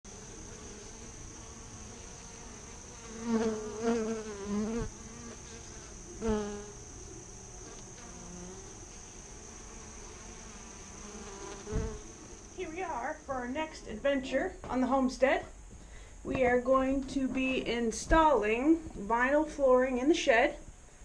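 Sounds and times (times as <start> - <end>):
bees buzzing: 0.1 - 14.0.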